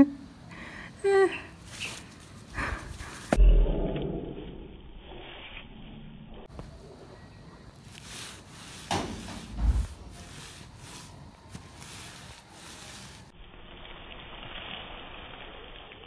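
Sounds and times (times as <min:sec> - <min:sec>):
heavy thump: 0:08.9 - 0:10.2.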